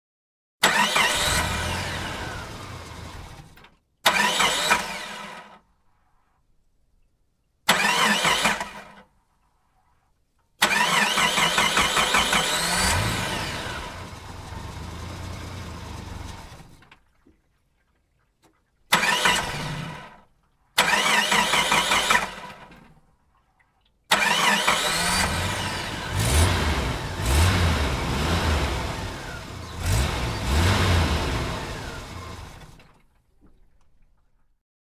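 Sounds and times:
car engine starting: 0.6s - 5.6s, 7.7s - 9.0s, 10.6s - 17.1s, 18.9s - 20.2s, 20.8s - 22.9s, 24.1s - 33.1s
car engine revving: 0.7s - 3.5s, 10.7s - 16.8s, 24.2s - 32.8s
car engine idling: 1.2s - 3.6s, 10.9s - 16.8s, 24.8s - 32.8s.

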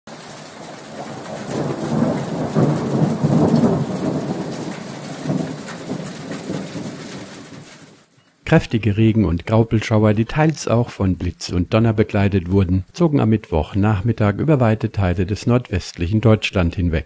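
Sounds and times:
thunder rolling: 0.1s - 7.8s
steady rain: 0.1s - 17.0s.

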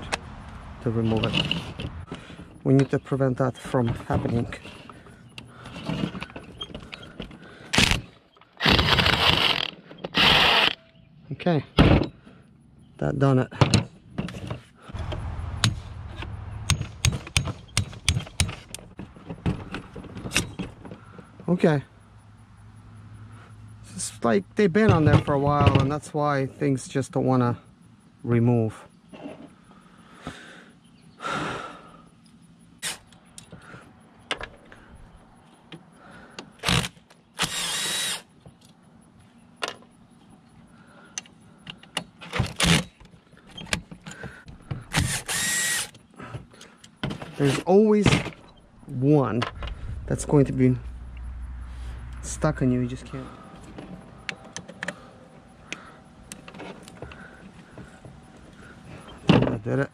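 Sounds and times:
low steady rumble: 14.9s - 19.1s, 48.4s - 56.3s
cordless driver spinning: 45.0s - 45.9s.

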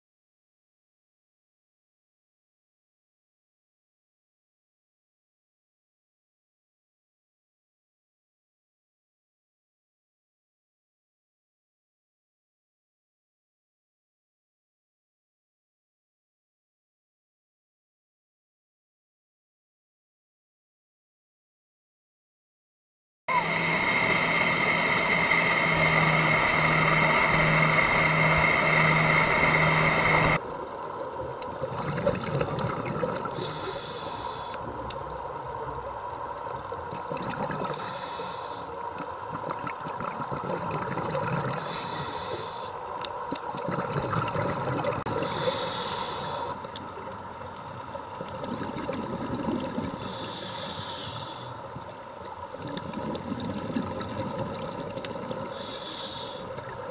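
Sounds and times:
boat engine running: 23.3s - 30.4s
underwater exhaled bubbles: 25.0s - 56.9s.

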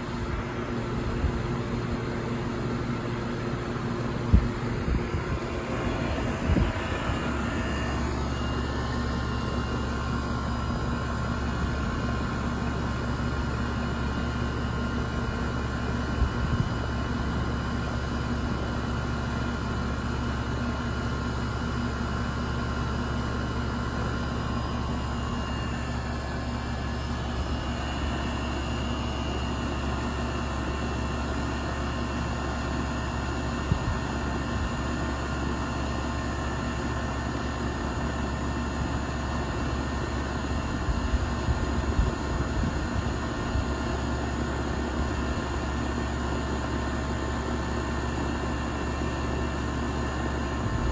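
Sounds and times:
air conditioner unit humming: 0.0s - 10.0s
fan rushing air: 0.0s - 12.0s.

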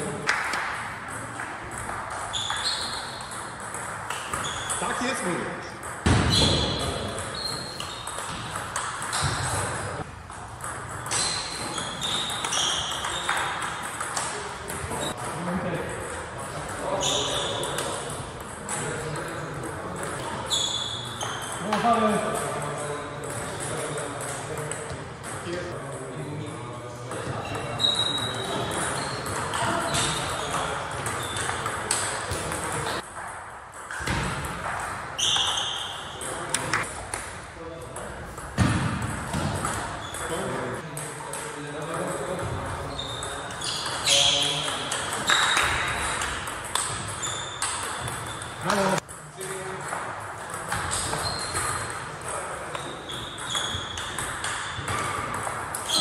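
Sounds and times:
high squeak: 2.3s - 3.3s, 6.3s - 8.2s, 11.1s - 13.4s, 20.5s - 21.6s, 35.2s - 36.2s, 42.9s - 45.8s, 47.1s - 48.6s, 50.9s - 51.9s, 52.7s - 54.2s
ping pong ball ticking: 7.1s - 9.3s, 10.3s - 15.3s, 38.3s - 55.9s.

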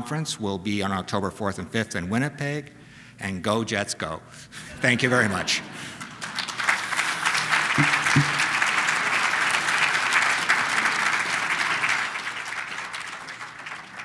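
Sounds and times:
audience applauding: 5.1s - 14.0s.

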